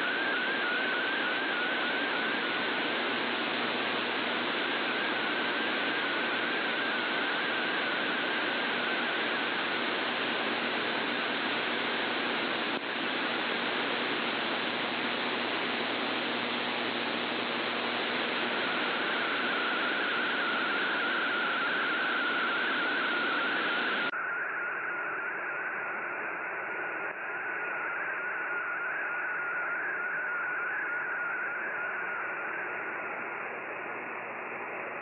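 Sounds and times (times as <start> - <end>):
radio static hiss: 0.0 - 24.1.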